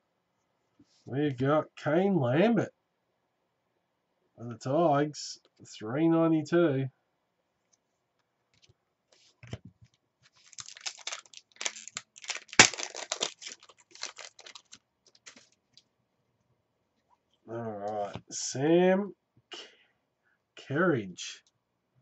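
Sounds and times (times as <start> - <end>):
wrapper crinkling and tearing: 10.3 - 15.6.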